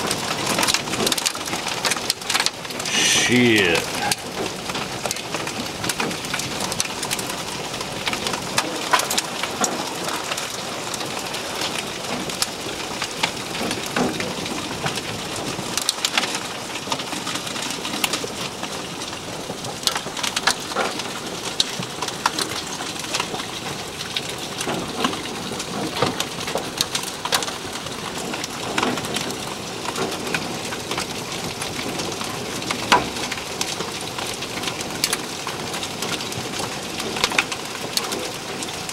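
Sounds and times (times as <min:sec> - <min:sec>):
heavy rain hissing: 0:02.8 - 0:04.4.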